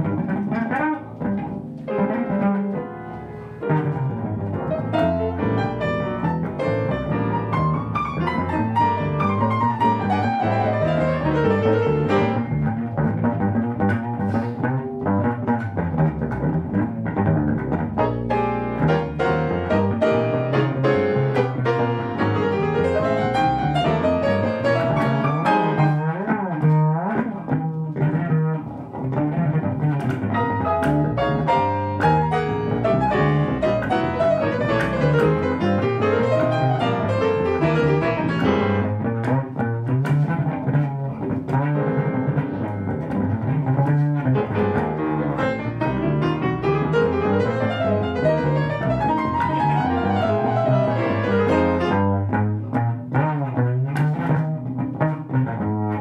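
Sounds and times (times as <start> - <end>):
piano accompanying: 0.0 - 56.0
upright bass plucked: 0.0 - 56.0.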